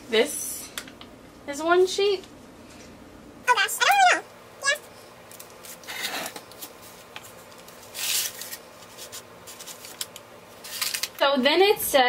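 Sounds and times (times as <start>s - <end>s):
paper liner rustling: 5.3s - 11.2s.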